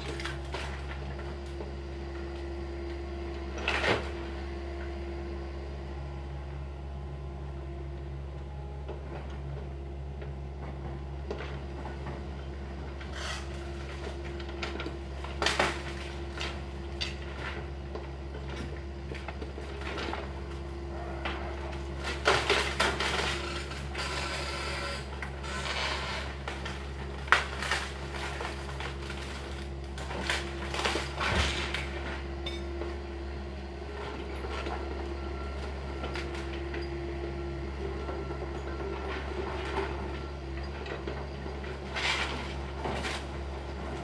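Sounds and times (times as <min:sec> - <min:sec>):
excavator diesel engine running: 0:00.0 - 0:44.0
wood debris clattering crashes: 0:26.3 - 0:32.0.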